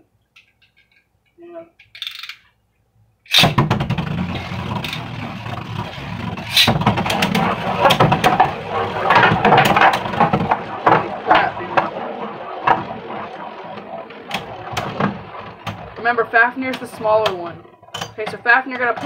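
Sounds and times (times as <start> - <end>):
spinning tops clattering in plastic: 1.8 - 2.5
spinning tops whirring rattle: 1.8 - 2.5, 3.3 - 19.0.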